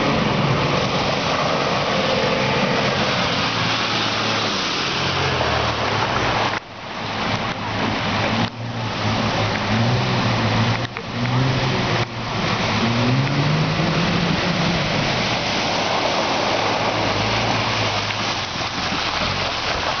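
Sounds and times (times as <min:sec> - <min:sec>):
water splashing: 0:00.0 - 0:20.0.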